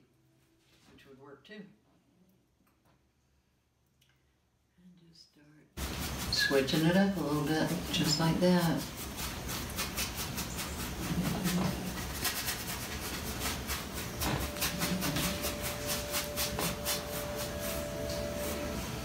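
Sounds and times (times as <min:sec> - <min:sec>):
steady hiss: 0:05.8 - 0:12.1
paintbrush scrubbing canvas: 0:05.8 - 0:19.0.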